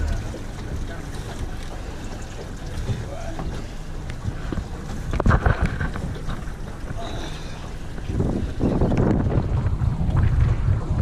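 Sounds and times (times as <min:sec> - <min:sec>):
outboard motor running: 0:00.0 - 0:10.0
wind buffeting microphone: 0:04.1 - 0:11.0.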